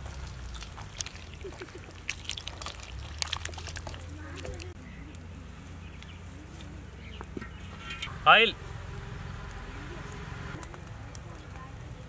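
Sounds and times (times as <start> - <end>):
water dripping: 0.0 - 4.8
water splashing in a steel bowl: 0.0 - 4.8.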